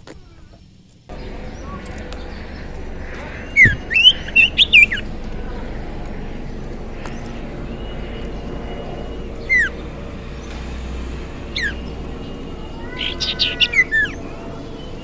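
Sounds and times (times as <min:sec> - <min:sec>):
bird whistles and chirps: 0:03.1 - 0:05.2, 0:06.5 - 0:10.8, 0:11.4 - 0:15.0.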